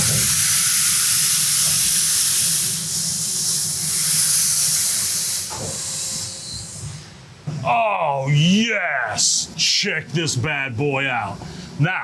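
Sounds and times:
machine air hiss: 0.0s - 7.5s.

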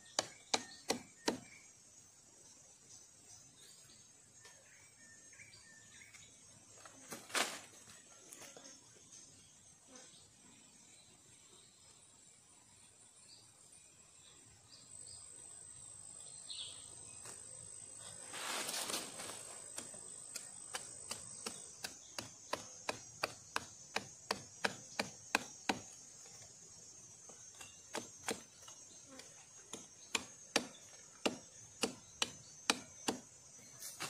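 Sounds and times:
high insect drone: 0.0s - 34.0s
machete chopping a stick: 0.1s - 1.6s, 19.7s - 25.9s, 27.6s - 28.5s, 29.7s - 33.3s.

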